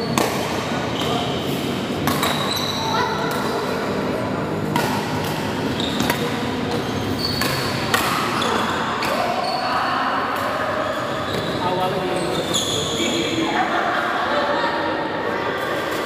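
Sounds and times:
rackets striking shuttlecock: 0.1 - 1.2, 1.8 - 2.5, 4.7 - 9.3
shoes squeaking on court: 0.9 - 3.7, 5.2 - 9.7, 10.8 - 13.4.

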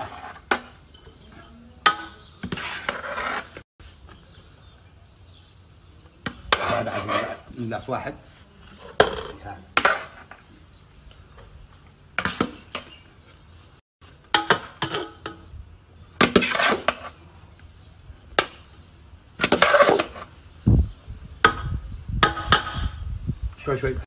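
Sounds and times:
metal spoon scraping a pot: 1.8 - 3.6, 6.5 - 7.5.

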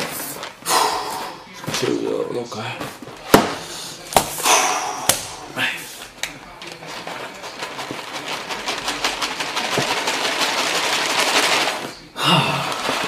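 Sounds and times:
dry food rattling onto countertop: 6.3 - 12.1.

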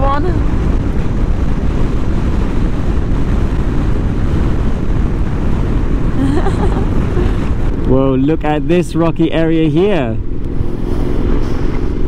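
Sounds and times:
motorcycle engine drone: 0.0 - 12.0
tyres on road: 0.0 - 12.0
wind rushing over microphone: 0.0 - 12.0.

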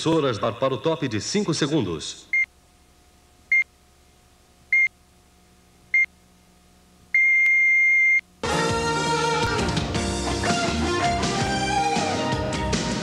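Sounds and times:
guitar rock music: 8.4 - 13.0.

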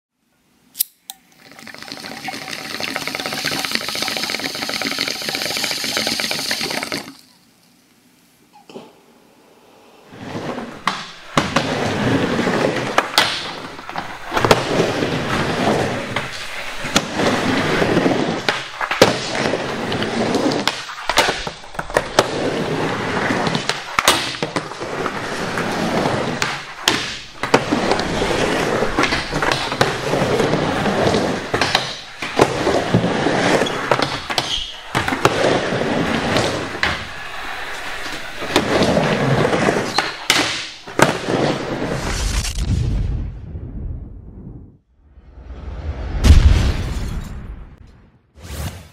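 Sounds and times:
skateboard wheels rolling on ramp: 10.1 - 42.6.

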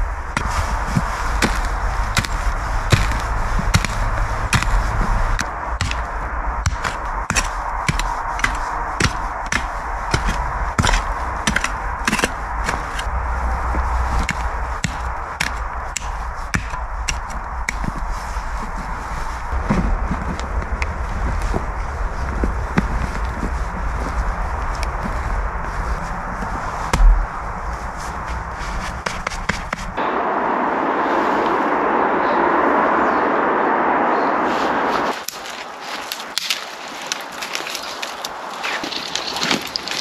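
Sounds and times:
shovel chopping into soil: 0.4 - 6.0, 6.6 - 13.1.

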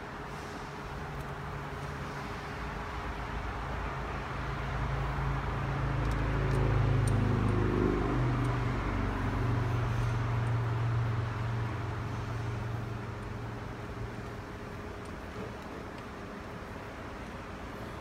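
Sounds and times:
shop machinery hum: 0.0 - 18.0.

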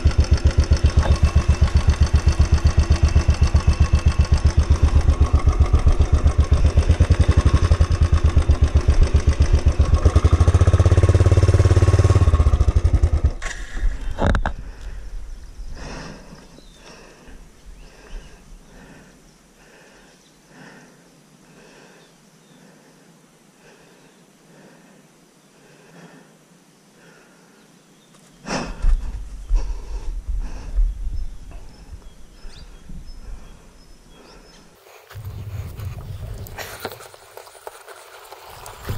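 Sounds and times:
motorcycle engine thumping: 0.0 - 10.4.

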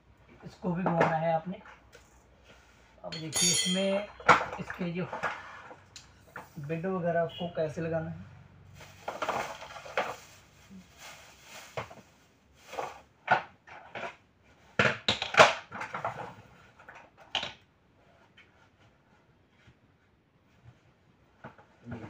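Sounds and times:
plastic rustle: 8.7 - 14.8
plastic clacks and knocks: 14.8 - 17.6.

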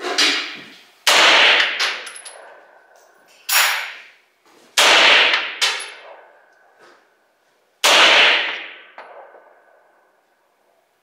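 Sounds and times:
pistol shots with echo: 1.1 - 2.5, 4.8 - 6.3, 7.8 - 9.6.

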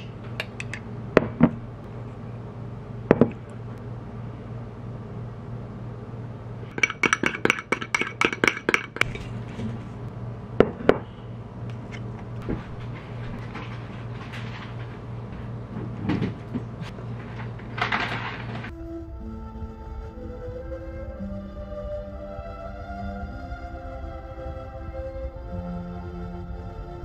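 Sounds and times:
low steady hum: 0.0 - 27.0
spoon clinking against ceramic bowl: 6.7 - 9.1.

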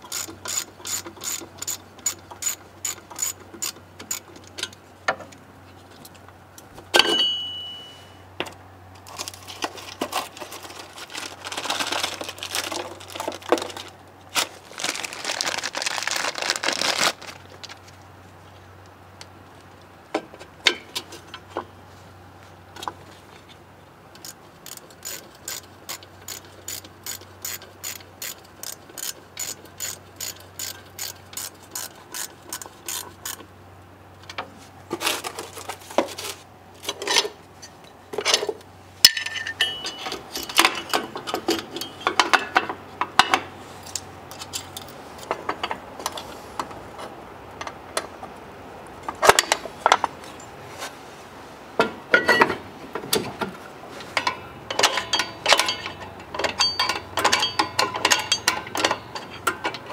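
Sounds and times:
tools knocking against metal: 7.0 - 8.0, 39.1 - 43.5, 54.2 - 59.9
brief metallic ring: 7.0 - 8.3
socket ratchet clicking: 24.2 - 33.4.

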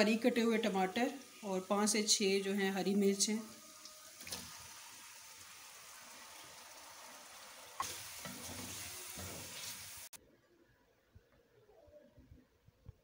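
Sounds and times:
vegetables sizzling in hot oil: 0.0 - 10.2
wooden spatula scraping pan: 7.8 - 10.1.

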